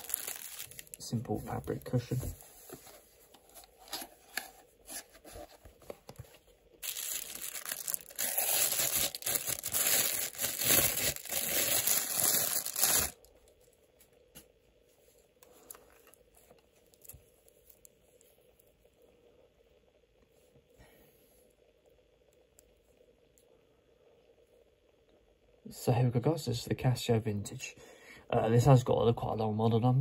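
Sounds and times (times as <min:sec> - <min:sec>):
packaging crinkling: 0:00.0 - 0:01.7, 0:03.6 - 0:13.3
packaging rustling: 0:00.0 - 0:13.3.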